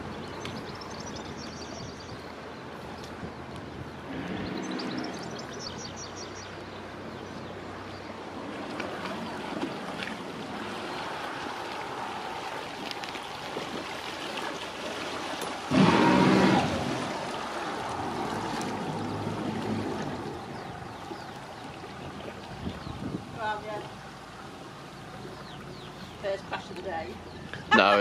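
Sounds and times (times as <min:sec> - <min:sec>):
boat engine running: 0:03.3 - 0:14.7, 0:15.4 - 0:28.0
water washing: 0:08.4 - 0:27.1
loud burst: 0:15.7 - 0:16.8.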